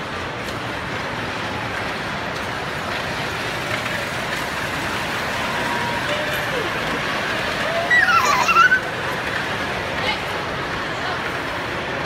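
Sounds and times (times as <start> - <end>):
small train rumbling on track: 0.0 - 12.0.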